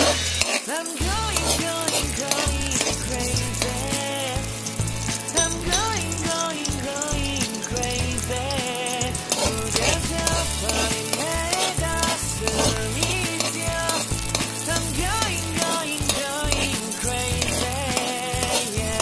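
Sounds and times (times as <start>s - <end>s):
metal spatula scraping pan: 0.0s - 0.7s
background music: 0.0s - 19.0s
onion frying in oil: 0.0s - 19.0s.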